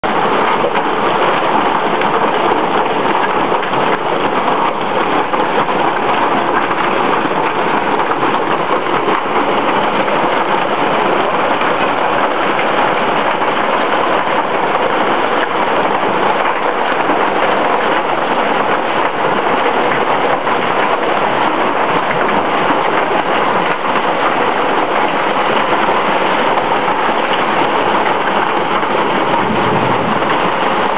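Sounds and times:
hail pelting down: 0.0s - 30.9s.

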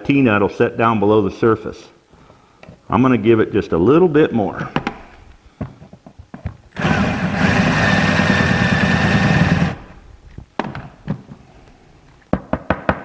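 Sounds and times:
power drill boring into wood: 6.8s - 10.0s.

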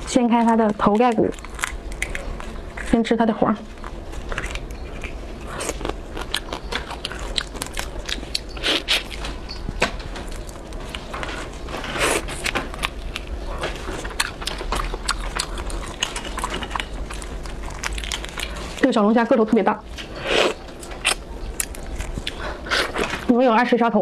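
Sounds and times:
biting and chewing: 0.0s - 23.4s
crayfish shells cracking: 0.4s - 3.0s, 3.9s - 9.2s, 12.2s - 18.8s.

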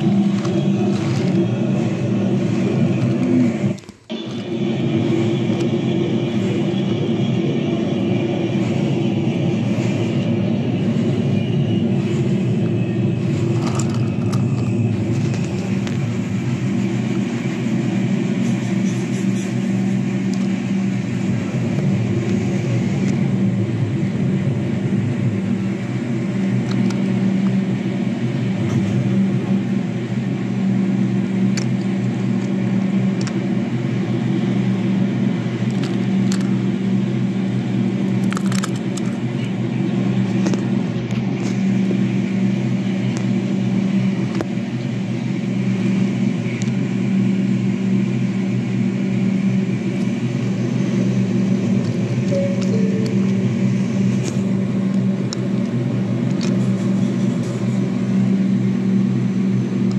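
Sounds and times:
wooden wheels rolling on wood: 0.0s - 4.2s.

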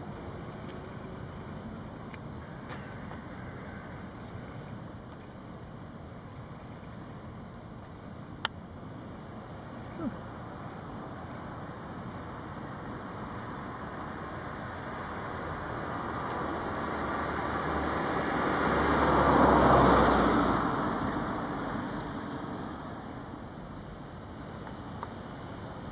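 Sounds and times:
vehicle driving past: 15.6s - 23.0s.

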